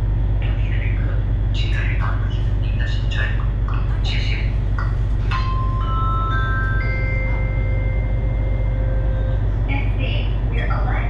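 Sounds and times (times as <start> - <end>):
boat engine droning: 0.0 - 11.0
rising four-note chime: 5.3 - 9.4.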